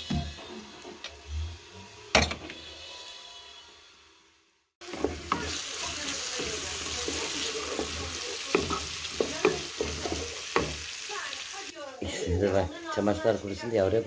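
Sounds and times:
onions sizzling in oil: 0.0s - 14.0s
wooden spoon knocking on pot: 6.4s - 10.9s.

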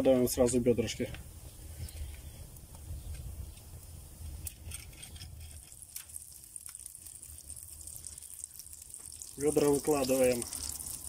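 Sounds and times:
sharp crackles: 1.9s - 11.0s
butter sizzling in a frying pan: 5.7s - 11.0s.

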